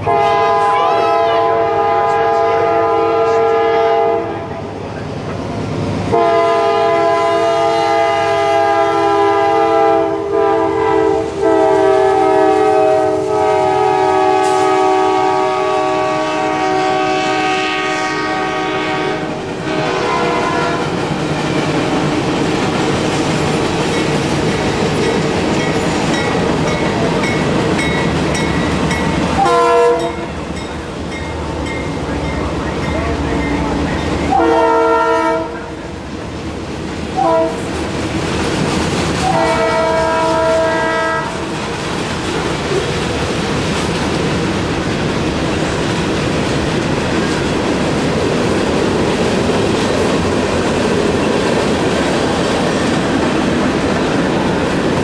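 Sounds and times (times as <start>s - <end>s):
locomotive horn blowing: 0.0s - 4.6s, 6.1s - 21.0s, 29.3s - 30.3s, 33.6s - 35.8s, 37.2s - 37.7s, 39.2s - 41.5s
freight train rumble and wheel clatter: 0.0s - 55.0s.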